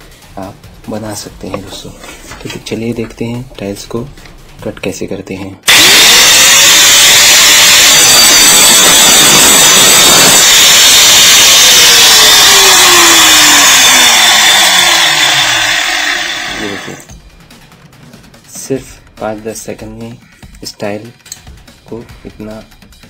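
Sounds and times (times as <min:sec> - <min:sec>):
angle grinder cutting tile: 0:05.7 - 0:17.1
grinder disc winding down: 0:05.7 - 0:17.1.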